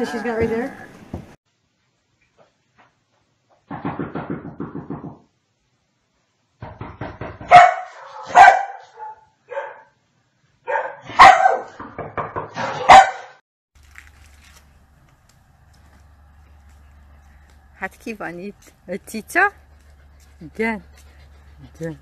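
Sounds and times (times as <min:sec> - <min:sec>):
dog barking loudly: 0:07.5 - 0:09.9, 0:10.7 - 0:11.8, 0:12.6 - 0:13.4
dog low rumble: 0:15.6 - 0:22.0.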